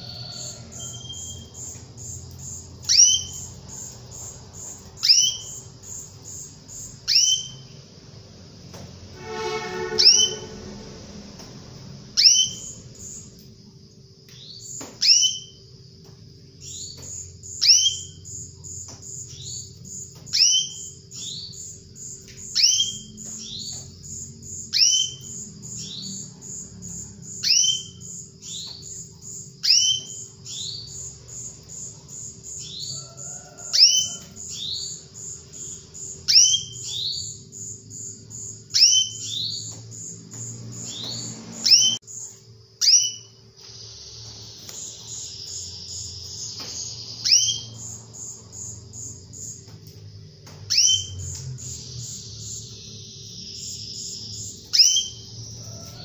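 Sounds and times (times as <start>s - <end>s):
canary calling: 0.0s - 7.8s, 9.2s - 11.0s, 12.1s - 13.3s, 29.6s - 42.0s, 42.8s - 49.5s, 50.7s - 56.0s
fast high trill: 9.2s - 11.2s.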